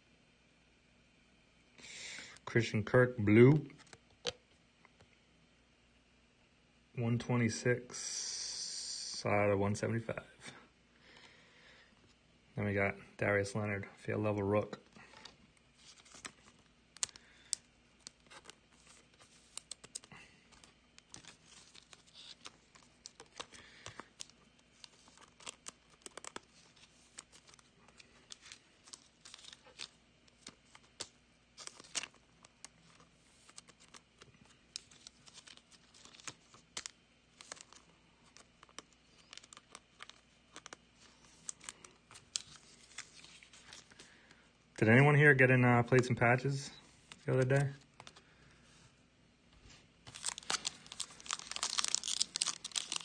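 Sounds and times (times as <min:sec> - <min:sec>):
plastic card sleeves crinkling: 0:14.6 - 0:44.5, 0:45.8 - 0:48.9, 0:49.6 - 0:53.0
cards scraping: 0:15.0 - 0:44.1, 0:49.7 - 0:53.0.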